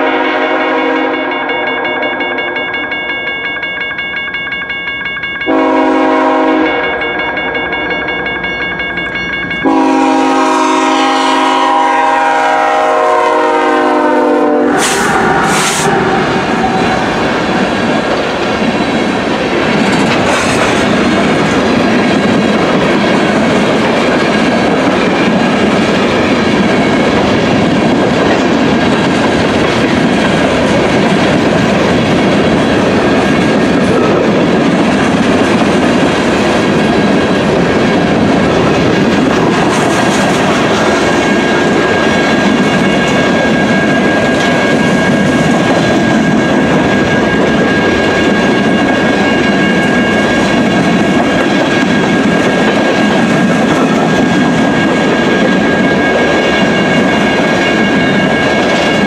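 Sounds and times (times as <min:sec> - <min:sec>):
train wheels rumbling on rails: 0:00.0 - 0:59.0
thin high ring: 0:01.1 - 0:10.0.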